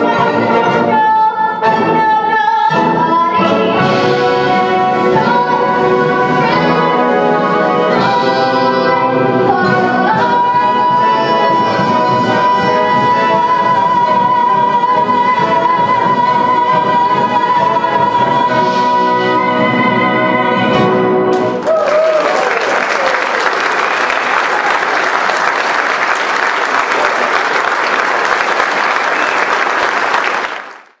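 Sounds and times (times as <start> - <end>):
girl singing with vibrato: 0.0 - 20.8
brass band playing: 0.0 - 21.6
audience applauding loudly: 21.4 - 31.0.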